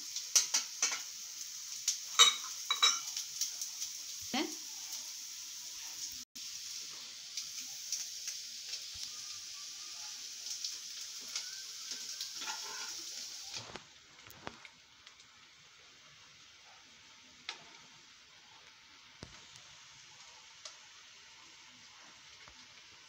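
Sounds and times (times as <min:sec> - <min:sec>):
food sizzling in a pan: 0:00.0 - 0:23.0
metal utensil clicking on pan: 0:00.2 - 0:01.1, 0:01.8 - 0:03.5.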